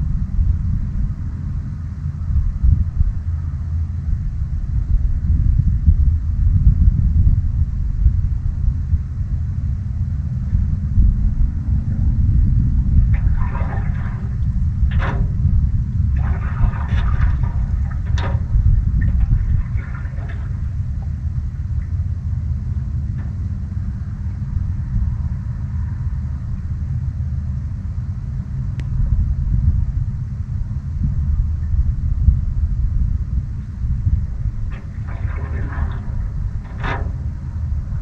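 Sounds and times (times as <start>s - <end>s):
wind buffeting microphone: 0.0s - 38.0s
water splashing against canoe: 13.0s - 22.0s, 34.3s - 38.0s.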